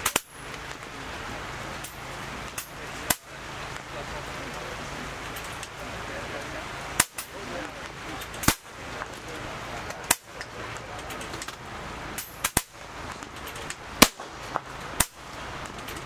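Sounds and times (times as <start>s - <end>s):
air rifle shots: 0.0s - 0.4s, 7.0s - 7.4s, 8.3s - 8.7s, 12.2s - 13.2s, 14.0s - 15.4s
steady background noise: 0.0s - 16.0s.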